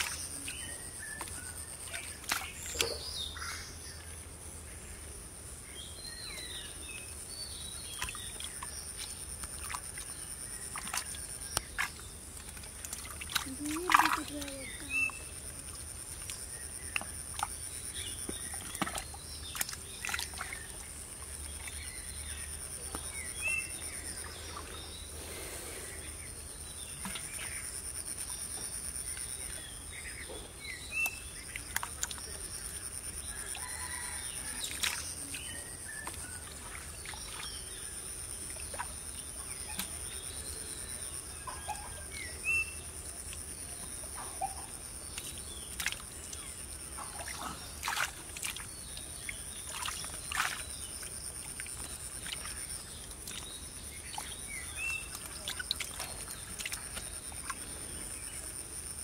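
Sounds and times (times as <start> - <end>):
hand squelching in mud: 8.0 - 15.0, 45.1 - 48.7.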